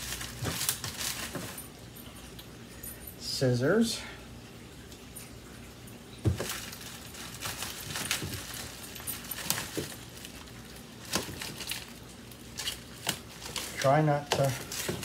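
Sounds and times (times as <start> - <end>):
plastic bag rustling: 0.0 - 2.2, 6.2 - 15.0.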